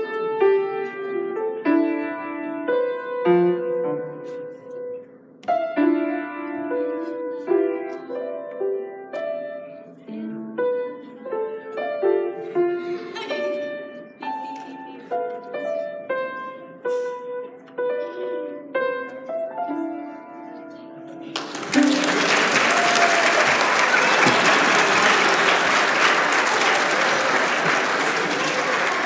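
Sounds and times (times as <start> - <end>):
audience applause: 21.3 - 29.0.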